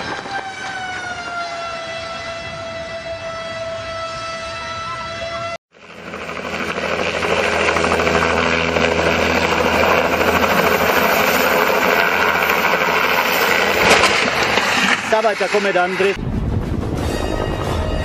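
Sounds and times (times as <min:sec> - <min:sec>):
helicopter engine and rotor noise: 0:04.8 - 0:16.2.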